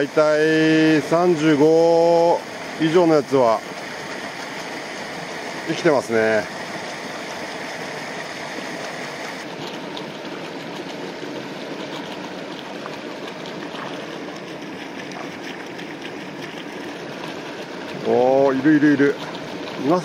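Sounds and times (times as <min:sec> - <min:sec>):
running water rushing: 0:00.0 - 0:20.0
small water splashes: 0:00.0 - 0:20.0.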